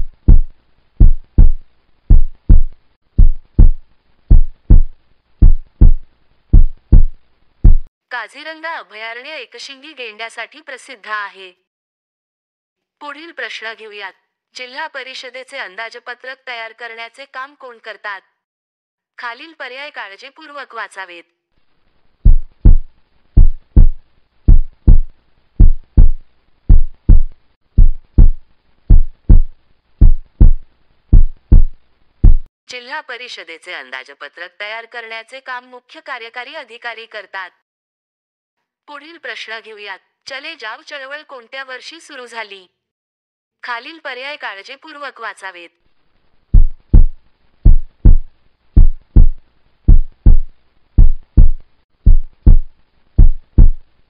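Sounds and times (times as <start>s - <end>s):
heartbeat double thumps: 0.0s - 7.9s, 22.2s - 32.5s, 46.5s - 53.8s.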